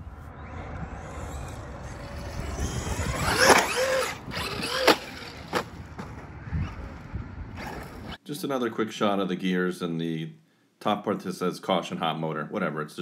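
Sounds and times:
electric motor whining: 0.0s - 8.2s
tire noise: 0.0s - 8.2s.

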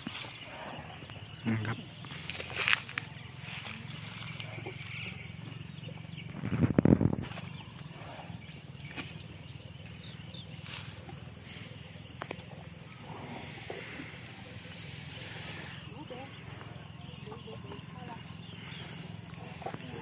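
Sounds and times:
elephant call: 7.6s - 20.0s.

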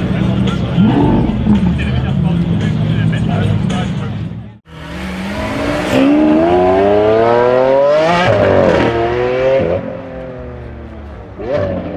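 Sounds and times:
car engine accelerating hard: 4.7s - 11.9s.

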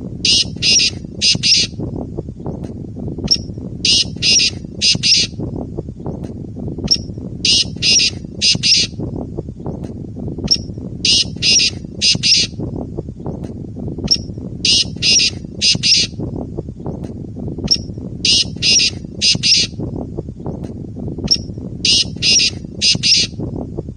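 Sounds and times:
low rumble: 0.0s - 23.9s
francolin calling: 0.3s - 1.8s, 3.3s - 5.4s, 6.9s - 9.0s, 10.5s - 12.6s, 14.1s - 16.2s, 17.7s - 19.8s, 21.3s - 23.4s.

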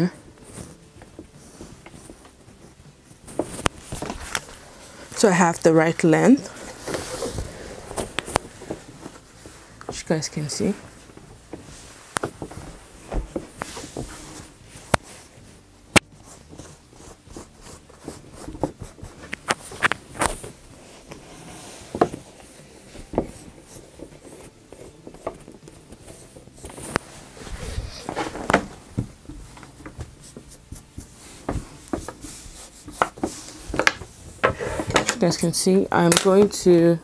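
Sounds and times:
fabric smoothed by hand: 6.4s - 9.8s, 10.4s - 15.6s, 16.2s - 34.9s
chalk scraping on fabric: 16.1s - 20.0s, 20.8s - 22.3s, 30.2s - 33.8s.

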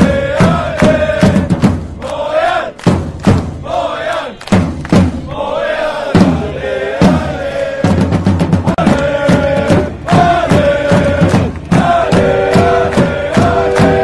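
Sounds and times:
drum thumps: 0.0s - 2.0s, 6.1s - 14.0s
crowd chanting in unison: 0.0s - 14.0s.

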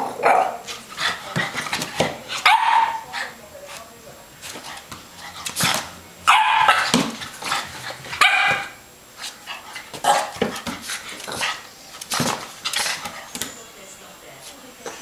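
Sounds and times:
puppy barking: 0.0s - 0.6s, 2.4s - 3.1s, 6.3s - 7.0s, 8.2s - 8.8s, 10.0s - 10.4s.

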